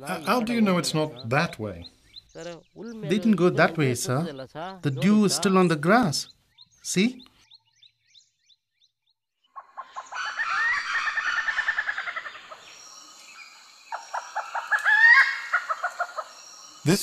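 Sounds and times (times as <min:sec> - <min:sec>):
faint high-pitched bird calls: 0:09.5 - 0:17.0.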